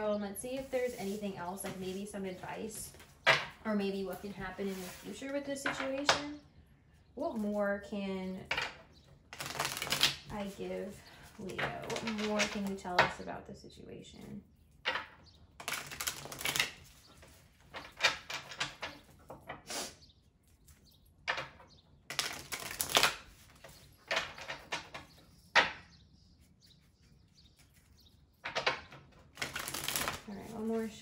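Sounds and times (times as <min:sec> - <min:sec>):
cards being shuffled: 0:09.3 - 0:10.6, 0:15.6 - 0:18.0, 0:22.1 - 0:25.1, 0:29.3 - 0:30.9.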